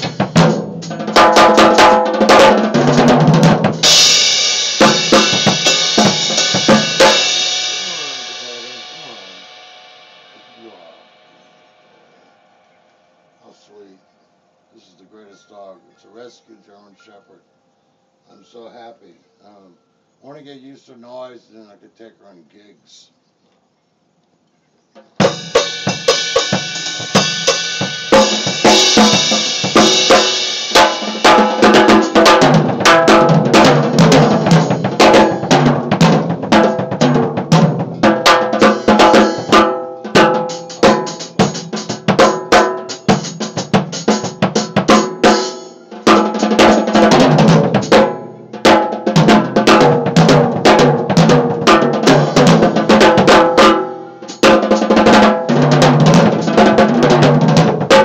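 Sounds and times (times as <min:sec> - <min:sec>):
drum kit played with sticks: 0:00.0 - 0:12.0, 0:25.0 - 0:58.0
cymbal ringing: 0:03.8 - 0:13.6.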